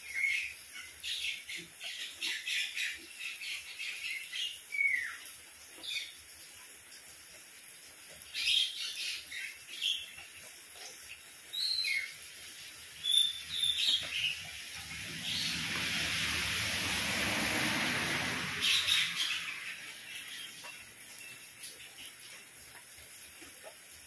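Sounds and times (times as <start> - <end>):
light rain: 0.0 - 24.0
birds chirping: 13.0 - 16.0, 18.6 - 22.5
broad rushing noise: 14.3 - 20.6.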